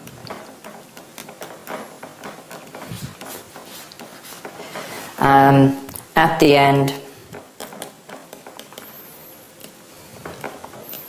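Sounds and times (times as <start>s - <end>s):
scratchy handwriting strokes: 2.5s - 5.3s.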